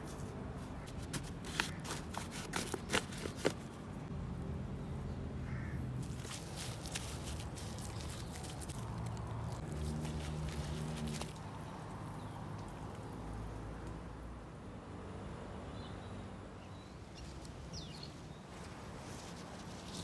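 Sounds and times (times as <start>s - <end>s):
soil rustling: 0.0s - 4.1s, 5.5s - 13.1s, 17.2s - 20.0s
bird calling: 5.5s - 6.6s.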